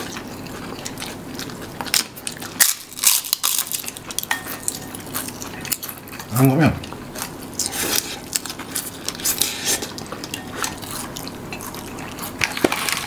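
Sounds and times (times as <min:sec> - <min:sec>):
cutlery clinking on dishes: 0:04.2 - 0:05.0.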